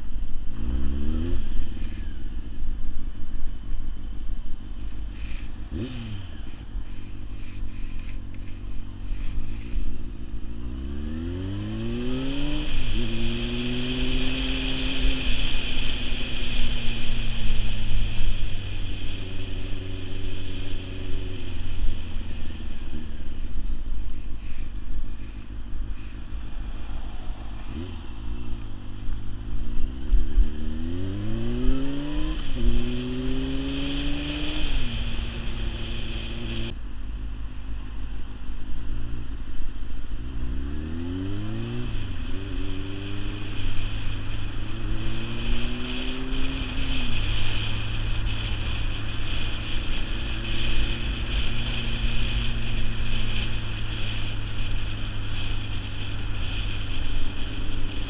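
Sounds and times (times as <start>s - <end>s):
motorcycle engine accelerating: 0.0s - 36.8s, 40.1s - 58.0s
wind rushing over microphone: 8.8s - 36.8s, 40.1s - 58.0s.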